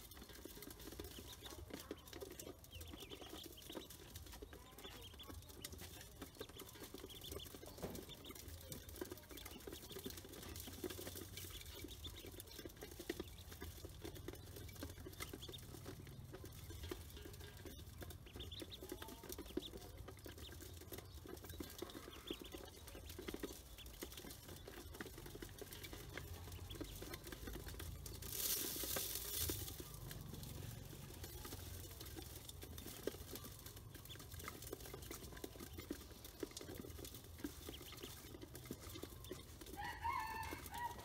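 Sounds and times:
ducklings tapping on metal basin: 0:00.0 - 0:41.0.

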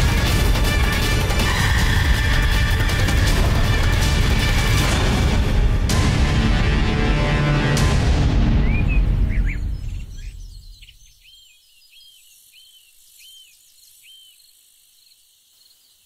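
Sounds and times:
dramatic background music: 0:00.0 - 0:10.7
faint outdoor ambience: 0:08.3 - 0:16.0
bird chirping: 0:08.5 - 0:16.0.

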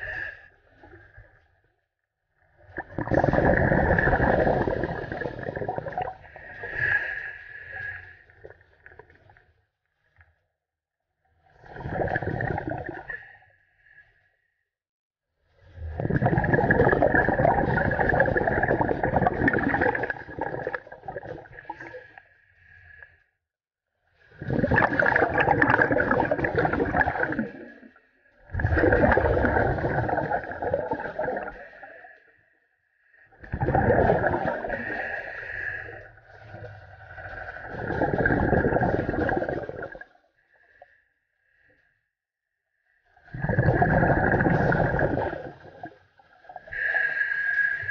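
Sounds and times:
diver's exhaled bubbles underwater: 0:02.4 - 0:07.2, 0:11.5 - 0:13.4, 0:15.7 - 0:22.2, 0:24.3 - 0:32.1, 0:33.3 - 0:40.2, 0:43.2 - 0:47.8.

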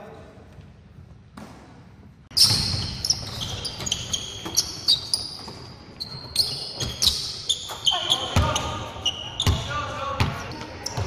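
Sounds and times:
sneaker squeaks: 0:02.3 - 0:11.0
basketball bouncing on wood floor: 0:09.4 - 0:10.4.

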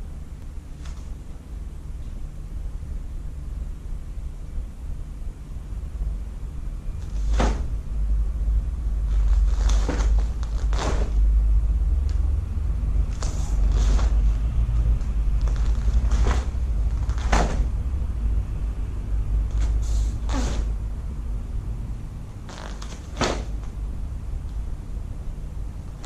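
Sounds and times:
low rumble: 0:05.2 - 0:26.0
uniform fabric snapping: 0:07.0 - 0:07.7, 0:09.1 - 0:11.3, 0:13.1 - 0:17.8, 0:19.5 - 0:20.7, 0:22.5 - 0:23.8.

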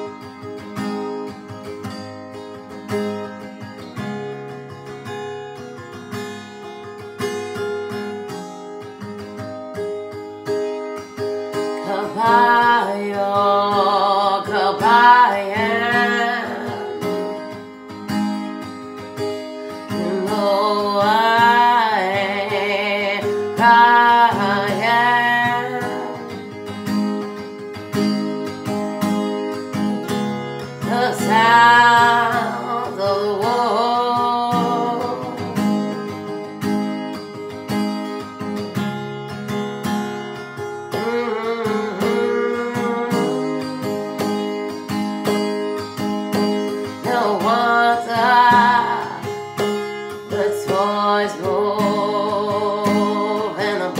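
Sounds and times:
acoustic guitar strumming: 0:00.0 - 0:53.9
woman singing: 0:11.5 - 0:17.9, 0:19.5 - 0:27.0, 0:30.1 - 0:36.9, 0:40.9 - 0:53.9.

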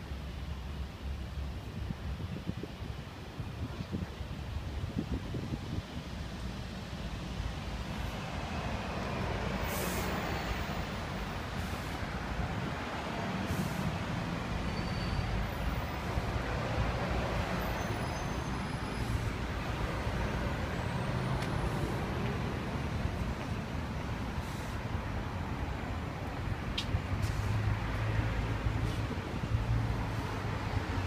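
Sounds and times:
road traffic passing: 0:00.0 - 0:31.0
air brake hisses: 0:09.6 - 0:10.5, 0:11.6 - 0:12.0, 0:13.5 - 0:14.0, 0:24.4 - 0:24.8.

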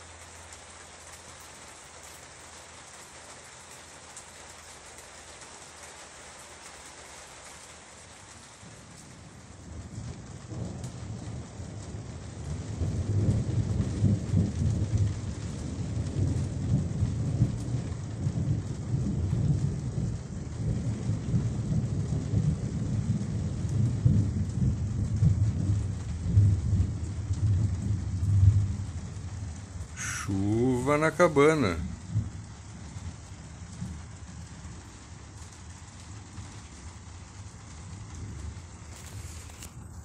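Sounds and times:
heavy rain on a roof: 0:00.0 - 0:40.0
deep drumming rumble: 0:12.5 - 0:30.0, 0:31.8 - 0:35.0.

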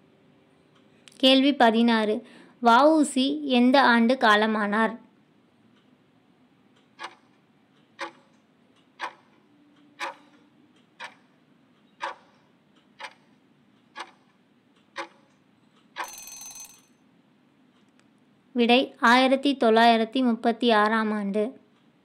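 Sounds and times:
clock ticking: 0:06.7 - 0:16.8
alarm ring: 0:16.0 - 0:17.0.

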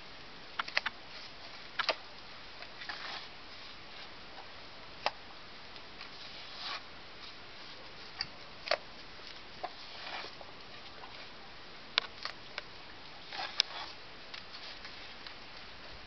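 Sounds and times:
steady hiss: 0:00.0 - 0:16.0
trowel scraping mortar: 0:02.8 - 0:03.3, 0:06.1 - 0:06.8, 0:09.6 - 0:10.4, 0:13.2 - 0:14.9.

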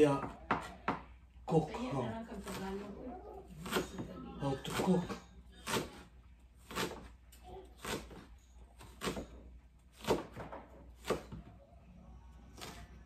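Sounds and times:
knife chopping on plastic board: 0:04.7 - 0:07.1, 0:10.0 - 0:11.4.

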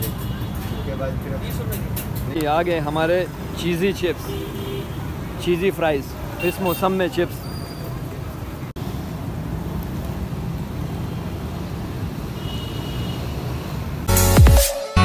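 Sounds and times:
street traffic rumble: 0:00.0 - 0:14.2
loud outro music: 0:14.1 - 0:15.0.

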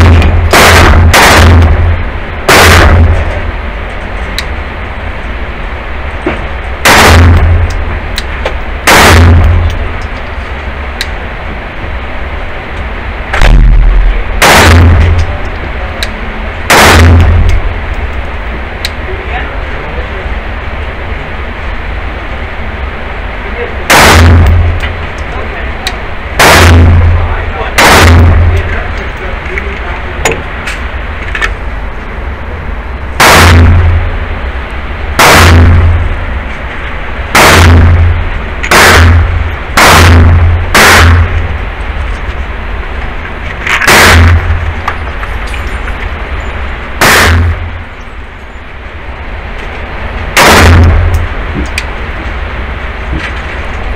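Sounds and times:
gunshots ringing indoors: 0:00.0 - 0:03.7, 0:06.8 - 0:10.2, 0:13.3 - 0:16.1, 0:16.7 - 0:18.2, 0:23.9 - 0:25.4, 0:26.4 - 0:29.3, 0:33.2 - 0:34.4, 0:35.1 - 0:36.4, 0:37.3 - 0:41.7, 0:43.7 - 0:45.8, 0:46.5 - 0:48.5, 0:50.4 - 0:51.4.

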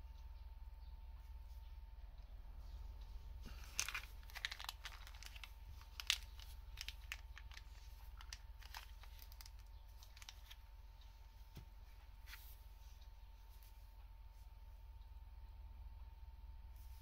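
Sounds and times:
plastic bag crinkling: 0:03.5 - 0:10.6.

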